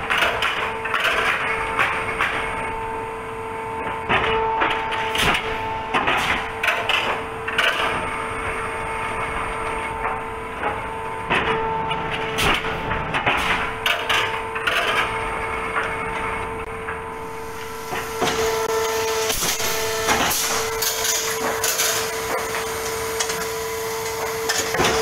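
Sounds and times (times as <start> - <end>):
machine two-tone hum: 0.0 - 25.0
sharp knocks and clatter: 10.0 - 15.9.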